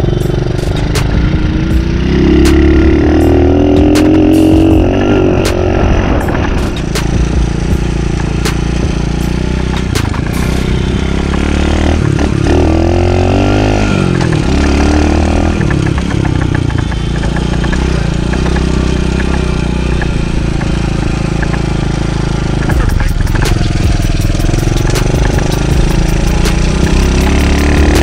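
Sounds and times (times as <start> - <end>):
dirt bike engine running: 0.0 - 28.0.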